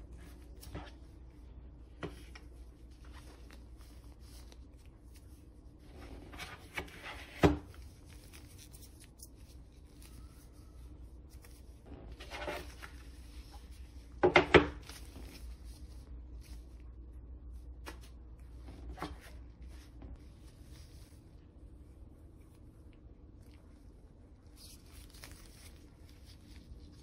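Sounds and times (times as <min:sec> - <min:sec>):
rustling cardboard packaging: 0:24.6 - 0:27.0.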